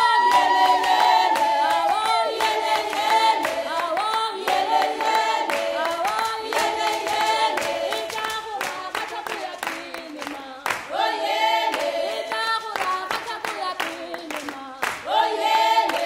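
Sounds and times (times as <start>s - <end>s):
choir singing in harmony: 0.0s - 8.6s, 10.9s - 12.7s, 15.0s - 16.0s
hand clapping: 0.0s - 16.0s.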